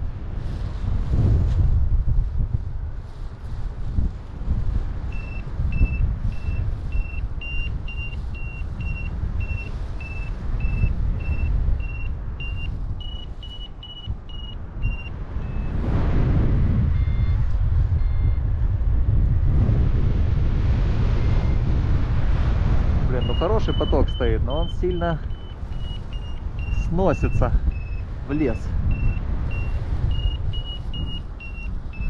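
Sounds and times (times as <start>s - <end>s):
wind rumble on microphone: 0.0s - 32.0s
variometer high beeps: 5.1s - 15.8s, 16.9s - 18.4s, 21.2s - 21.6s, 23.2s - 32.0s.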